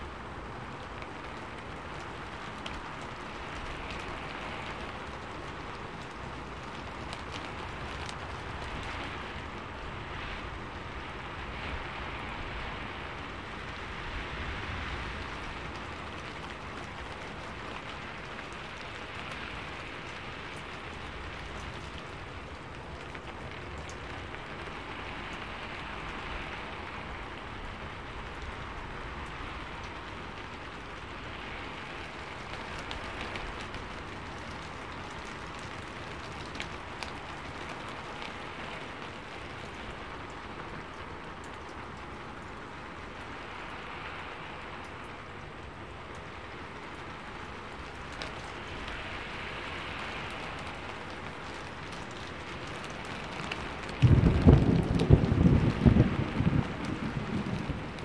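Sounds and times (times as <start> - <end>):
steady rain hiss: 0.0 - 58.0.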